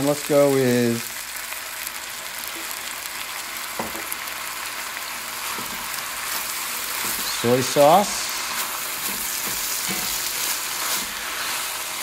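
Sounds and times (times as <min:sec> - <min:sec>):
food sizzling in a wok: 0:00.0 - 0:12.0
spatula stirring food: 0:04.7 - 0:12.0.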